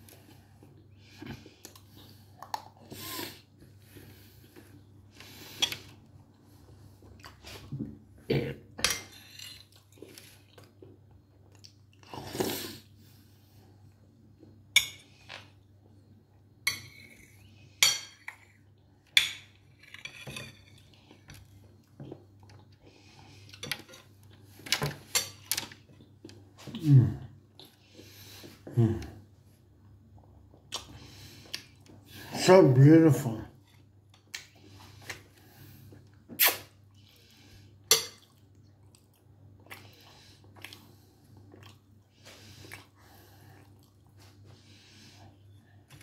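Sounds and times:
chewing: 0:38.2 - 0:44.2.

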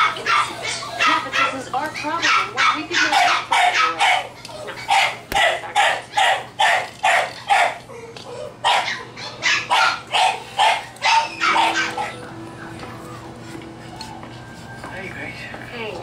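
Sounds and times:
puppy barking in high yaps: 0:00.0 - 0:07.8, 0:08.6 - 0:12.2.

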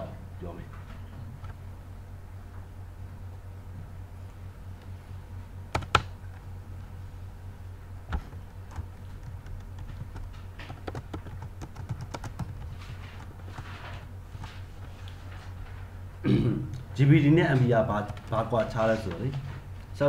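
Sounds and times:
steady low hum: 0:00.0 - 0:20.0
typing on computer keyboard: 0:05.7 - 0:06.1, 0:08.7 - 0:13.8, 0:18.0 - 0:18.5.

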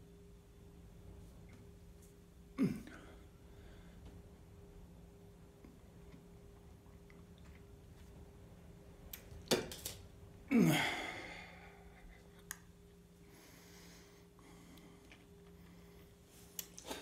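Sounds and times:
soft breathing: 0:02.9 - 0:04.4, 0:13.1 - 0:17.0
man exhaling with a groan: 0:10.5 - 0:12.0.

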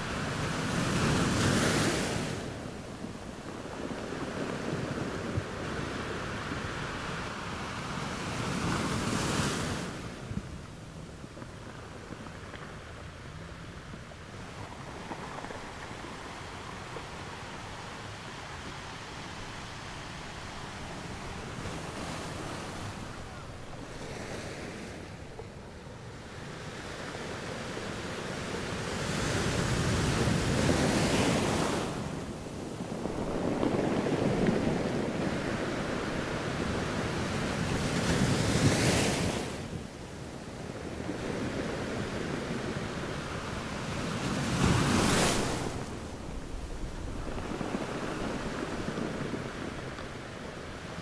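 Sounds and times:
sea waves breaking on beach: 0:26.2 - 0:51.0.

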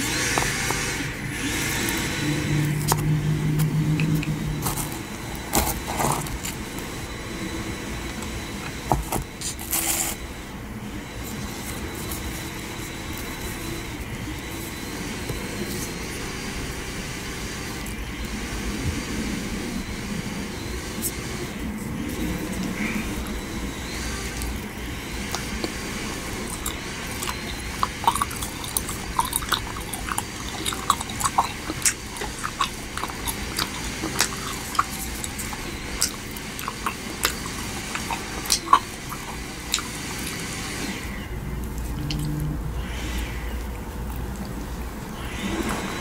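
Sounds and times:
steady low rumble: 0:01.0 - 0:06.7.

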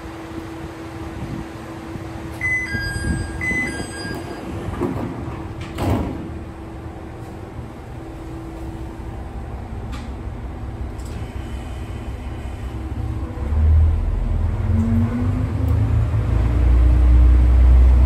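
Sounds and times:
sliding door shutting with thump: 0:04.6 - 0:06.4.

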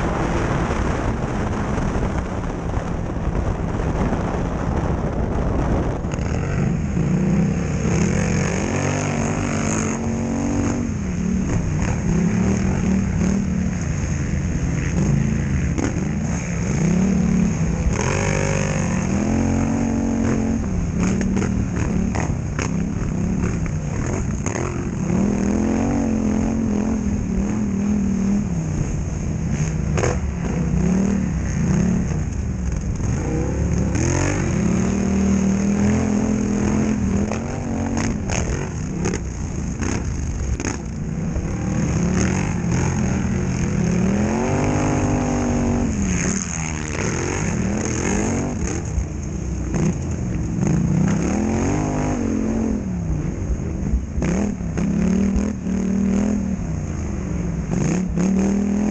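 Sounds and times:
quad engine revving: 0:06.1 - 0:13.6, 0:14.9 - 0:28.3, 0:32.7 - 0:49.0, 0:49.7 - 0:52.9, 0:54.2 - 0:56.5.

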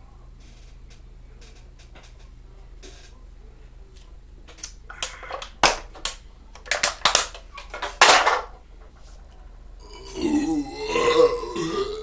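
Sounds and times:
aluminium can being crushed: 0:05.0 - 0:07.4.

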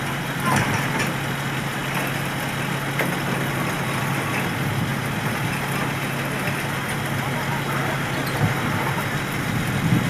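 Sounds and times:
truck diesel engine droning: 0:00.0 - 0:10.0.

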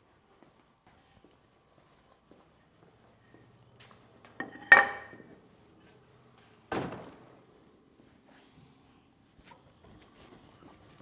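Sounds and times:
wood block knocking on saw table: 0:04.4 - 0:05.2.

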